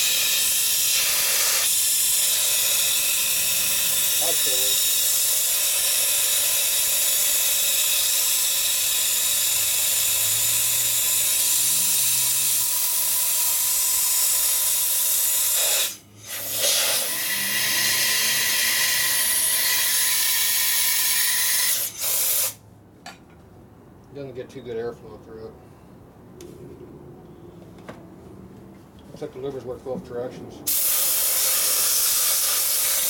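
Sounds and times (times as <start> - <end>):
compressed air hissing: 0.0 - 12.4, 15.1 - 18.4, 21.8 - 22.6, 30.7 - 33.0.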